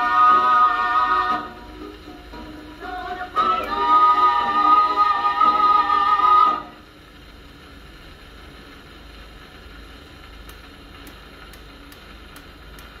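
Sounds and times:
record surface hiss: 0.0s - 13.0s
faint record ticks: 6.9s - 13.0s.

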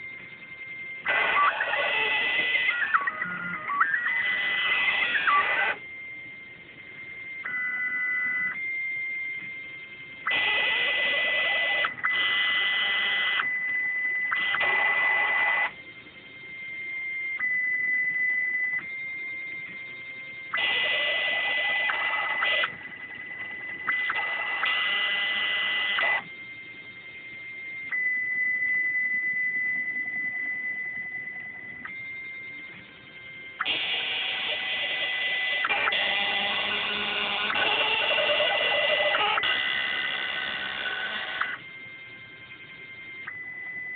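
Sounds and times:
stepper motors whining: 33.6s - 41.6s.

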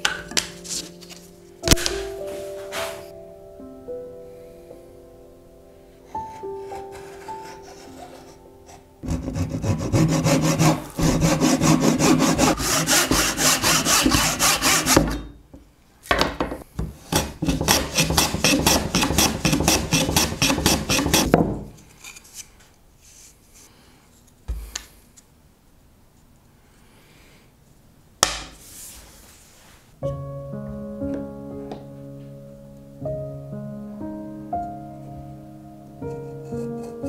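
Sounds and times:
hand tool scraping wood: 2.3s - 3.1s, 6.1s - 15.3s, 17.0s - 21.4s.

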